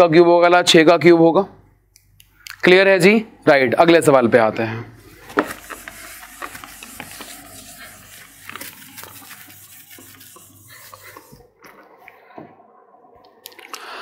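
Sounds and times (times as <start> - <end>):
eraser rubbing on whiteboard: 5.1 - 11.5.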